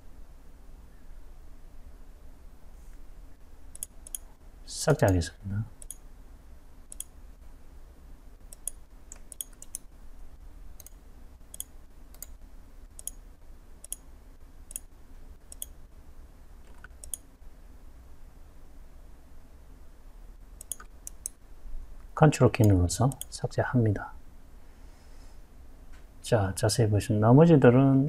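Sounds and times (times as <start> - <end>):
faint low hum: 0.0 - 28.0
computer mouse clicks: 3.7 - 4.3, 5.0 - 5.2, 5.8 - 6.0, 6.9 - 7.2, 8.5 - 9.9, 10.8 - 13.2, 13.8 - 14.1, 14.7 - 14.9, 15.5 - 15.8, 16.6 - 17.3, 20.6 - 21.4, 22.6 - 23.3.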